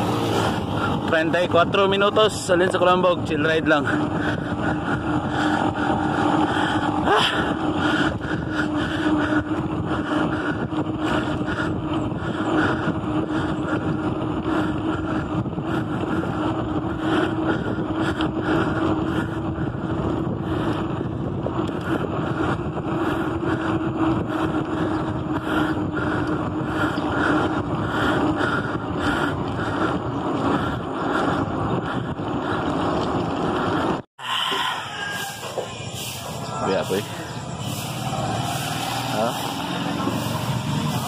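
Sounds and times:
wind rushing over microphone: 0.0s - 41.0s
steady low hum: 3.8s - 34.0s.

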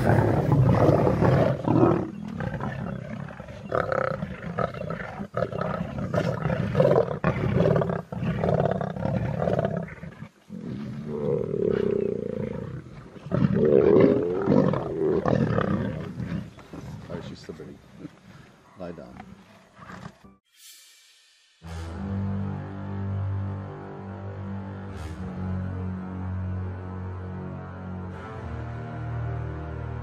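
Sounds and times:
lions growling: 0.0s - 18.4s, 19.0s - 20.2s.

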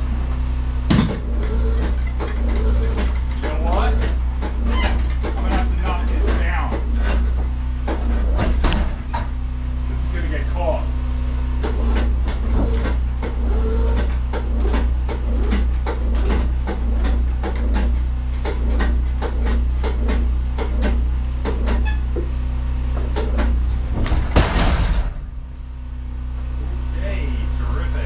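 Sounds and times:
sawmill engine humming: 0.0s - 24.4s, 25.1s - 28.0s
sharp knocks and clicks: 0.9s - 9.4s, 11.6s - 25.2s
loud clatter: 23.2s - 25.5s.

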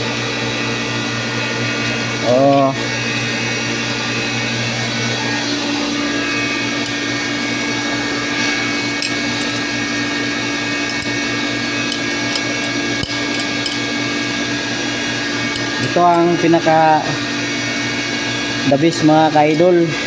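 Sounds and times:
machine humming: 0.0s - 20.0s.

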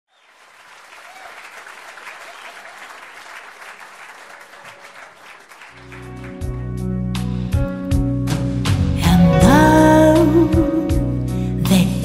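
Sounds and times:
audience applauding: 0.1s - 6.7s.

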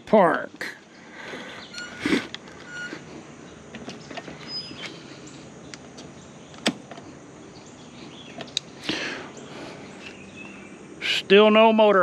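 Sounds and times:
sharp clicks and rattles: 1.6s - 5.0s.

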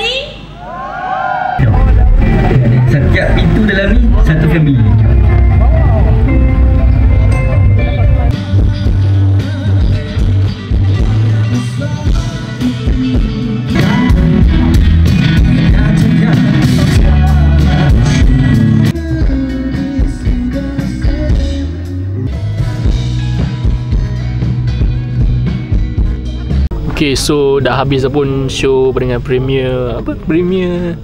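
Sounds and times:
drums: 1.5s - 27.0s
electric guitars: 1.5s - 27.0s
rock band playing: 1.6s - 27.0s
person singing: 7.5s - 23.0s.

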